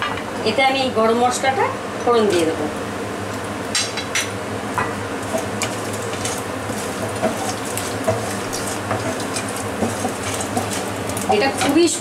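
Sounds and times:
spices sizzling in hot oil: 0.0 - 12.0
wooden spatula knocking on pan: 4.8 - 10.9.

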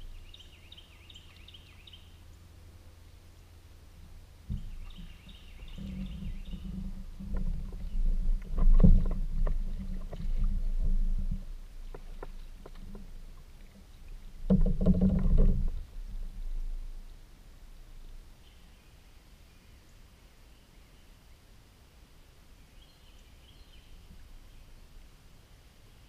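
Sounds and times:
kayak hull rumbling: 0.0 - 18.5
paddle strokes knocking on hull: 4.5 - 15.9.

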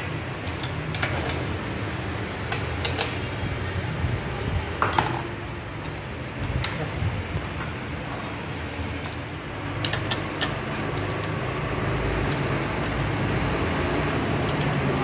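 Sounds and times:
spanner clicking on bolts: 0.4 - 1.5, 2.4 - 3.4, 9.7 - 11.4.

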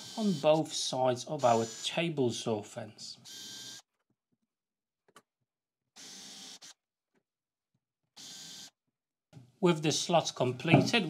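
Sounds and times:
cordless drill boring into wood: 0.0 - 0.7, 1.4 - 2.0, 3.2 - 3.9, 6.0 - 6.8, 8.2 - 8.8.

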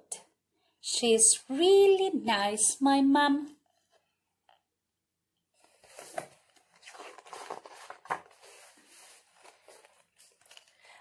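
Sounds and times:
paper pages rustling: 5.6 - 11.0.

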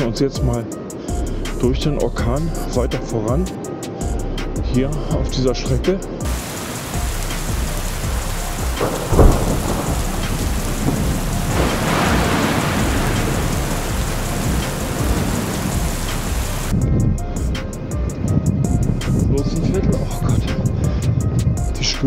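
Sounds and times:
wind: 0.0 - 22.0
rain hissing: 6.3 - 16.7
low thunder rumbling: 6.3 - 17.6.

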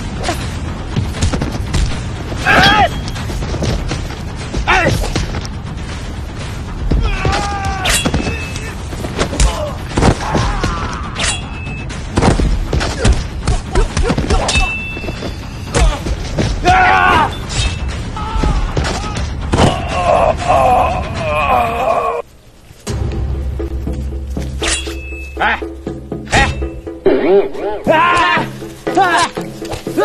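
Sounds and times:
fighters shouting and grunting: 2.4 - 3.0, 4.6 - 5.3, 6.8 - 11.4, 15.7 - 17.5, 18.1 - 22.2, 27.3 - 30.0
hits and thuds: 12.0 - 17.0
metallic clangs of blades: 24.6 - 25.4.

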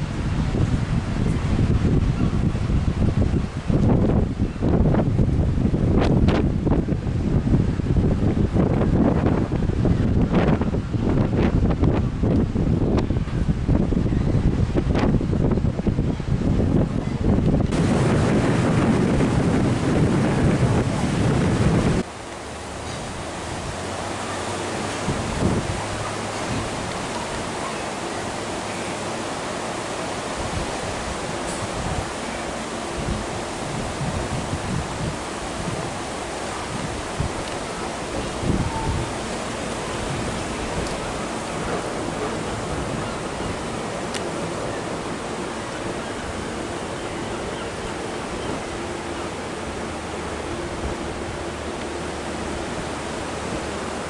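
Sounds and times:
wind buffeting microphone: 0.0 - 54.0.

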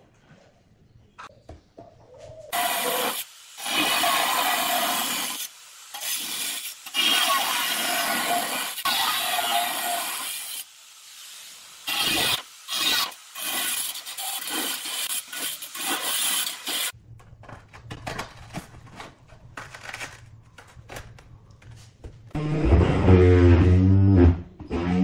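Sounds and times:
angle grinder cutting tile: 2.5 - 10.7, 11.8 - 16.9.

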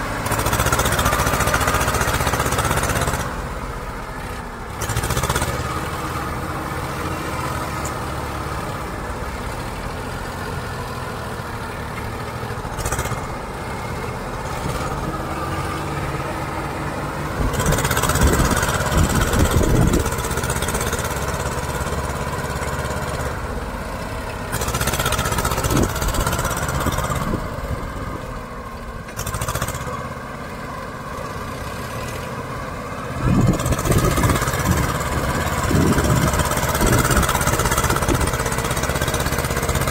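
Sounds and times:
tractor engines straining: 0.0 - 39.9.

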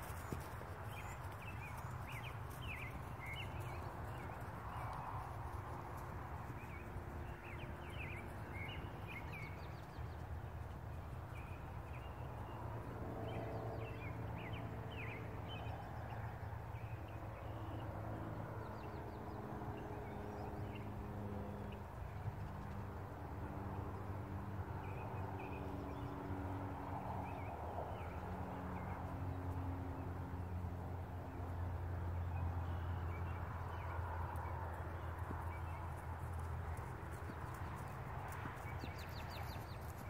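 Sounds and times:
birds chirping: 0.0 - 17.9, 31.3 - 40.0.

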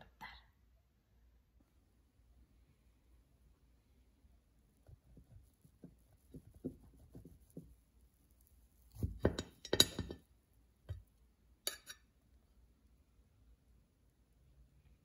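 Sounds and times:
knife scraping ceramic plate: 11.7 - 12.1
sharp clink on plate: 11.7 - 12.1.

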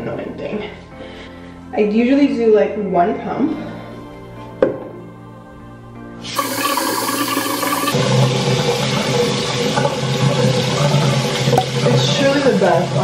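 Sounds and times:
tap water running into sink: 6.3 - 13.0.

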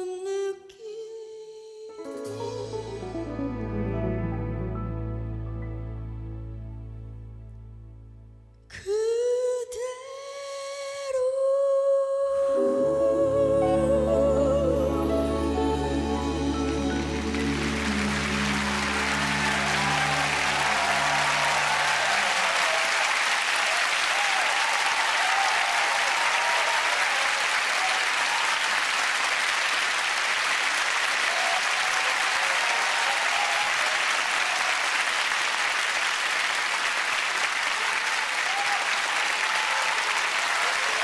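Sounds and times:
band's held chord: 12.6 - 22.3
audience applause: 15.0 - 41.0.

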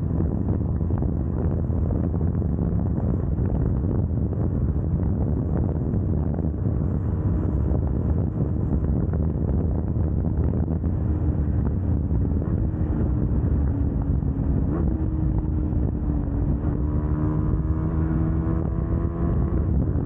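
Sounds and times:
motorcycle engine running high: 0.0 - 20.0
wind rushing over microphone: 0.0 - 20.0.

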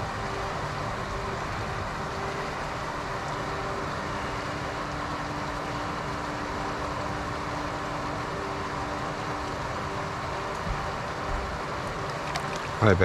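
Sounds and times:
faint steady hum: 0.0 - 13.0
water rushing: 11.7 - 13.0.

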